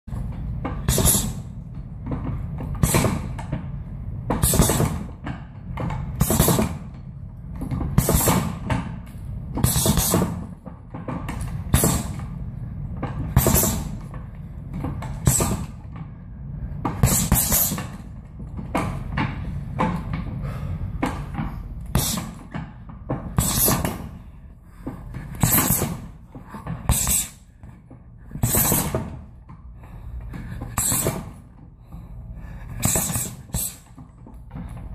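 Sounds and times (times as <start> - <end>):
punches hitting heavy bag: 0.8 - 1.5, 4.4 - 5.2, 6.2 - 6.8, 8.0 - 8.6, 9.6 - 10.5, 11.7 - 12.2, 13.3 - 14.0, 17.0 - 18.0, 21.9 - 22.4, 23.4 - 24.1, 25.3 - 26.1, 26.9 - 27.4, 28.4 - 29.2, 32.8 - 33.9.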